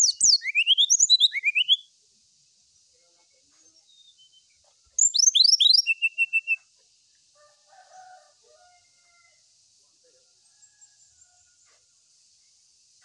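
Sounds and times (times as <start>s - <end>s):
bird singing whistles and notes: 0.0s - 1.9s, 3.9s - 6.7s
faint high hiss: 0.0s - 13.0s.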